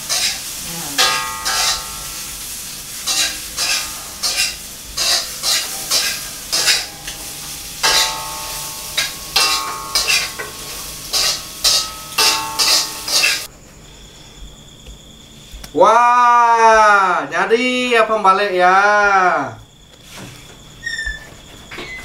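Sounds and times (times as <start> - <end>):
food sizzling: 0.0 - 13.5
metal utensil scraping a pan: 0.0 - 13.5.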